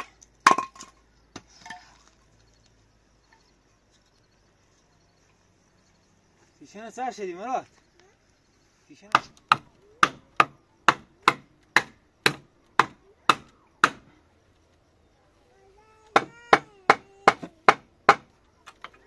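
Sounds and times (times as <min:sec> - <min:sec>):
hand tool striking wood: 0:00.0 - 0:01.8, 0:09.1 - 0:14.1, 0:16.1 - 0:19.0.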